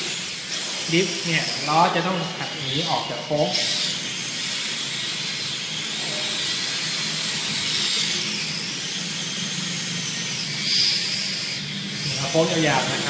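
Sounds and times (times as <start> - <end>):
high electric motor whine: 0.0 - 13.0.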